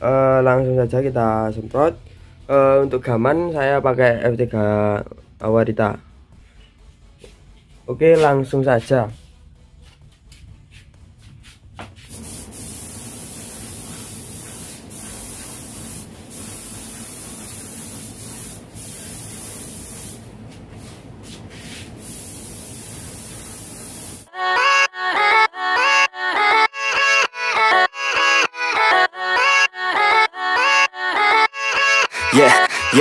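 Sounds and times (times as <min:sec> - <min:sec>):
spray gun hissing: 0:12.1 - 0:24.3.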